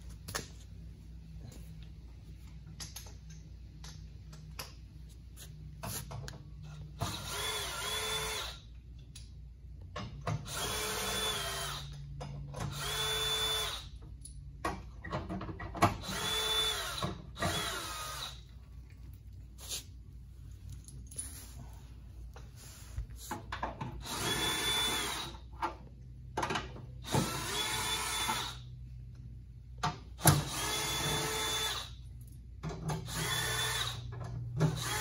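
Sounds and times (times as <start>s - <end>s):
power tool motor whirring: 16.0s - 18.4s, 24.0s - 25.3s, 33.1s - 34.0s.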